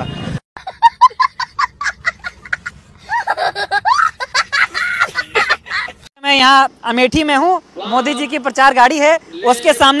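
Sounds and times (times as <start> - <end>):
boy laughing: 0.6 - 6.1.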